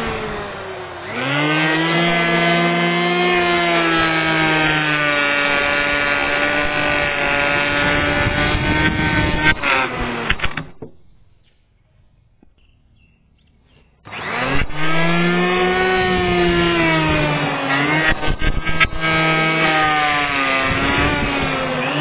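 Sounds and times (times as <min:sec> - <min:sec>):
electric hand planer running: 0:00.0 - 0:10.9, 0:14.0 - 0:22.0
clicks: 0:12.4 - 0:14.7.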